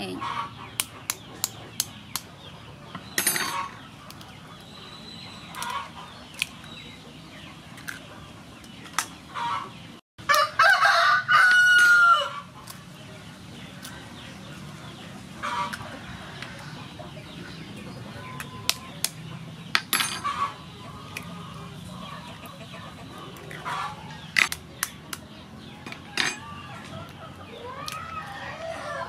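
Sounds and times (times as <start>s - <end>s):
rooster crowing: 10.3s - 12.4s, 28.1s - 29.0s.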